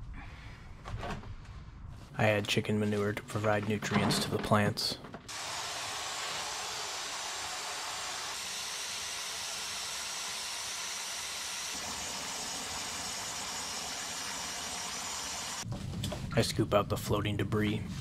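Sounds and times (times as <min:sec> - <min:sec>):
garden hose spraying water into tub: 0:05.3 - 0:15.6.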